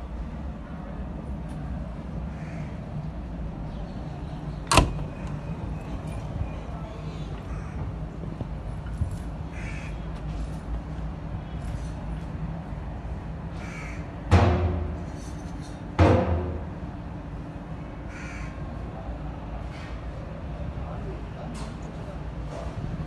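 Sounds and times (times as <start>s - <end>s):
crows cawing: 2.3s - 2.8s, 7.4s - 7.8s, 9.5s - 10.0s, 13.6s - 14.1s, 18.1s - 18.6s
steady low hum: 12.4s - 18.1s.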